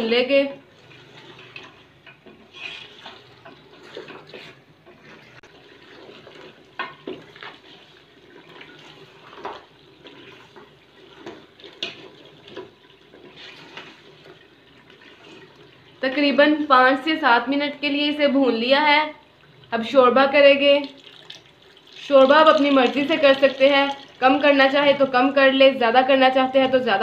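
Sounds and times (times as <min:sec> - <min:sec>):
spoon scraping and clinking pot: 0:01.0 - 0:05.4.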